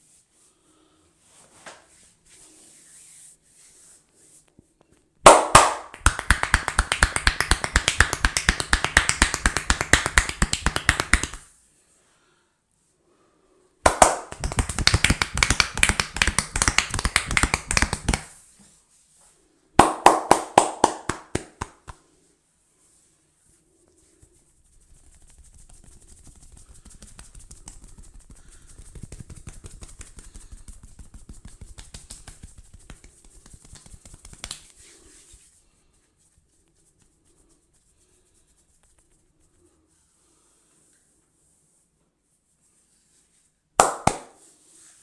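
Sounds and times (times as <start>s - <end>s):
hands clapping and tapping on head: 5.2s - 11.5s, 13.8s - 18.4s, 19.8s - 22.0s, 25.0s - 34.9s, 43.8s - 44.5s.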